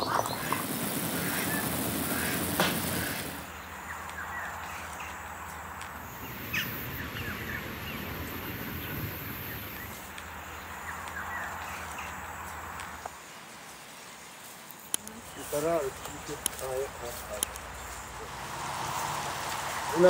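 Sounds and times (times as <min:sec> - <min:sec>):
bird chirps: 0:00.0 - 0:05.3, 0:06.0 - 0:12.2
steady low background noise: 0:00.0 - 0:18.2.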